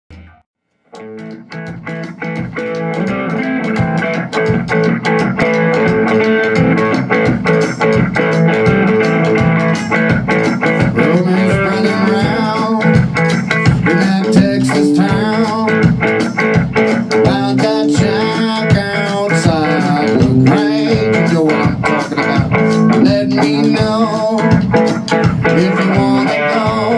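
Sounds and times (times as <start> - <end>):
rock band playing: 0.1 - 26.9
man singing: 10.8 - 16.0, 17.1 - 26.9.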